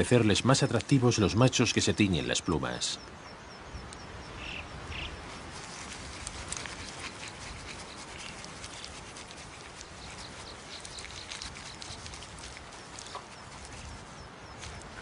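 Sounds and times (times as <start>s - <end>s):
birds scratching in dry soil: 0.0s - 2.1s, 4.4s - 15.0s
short high bird calls: 3.0s - 5.3s.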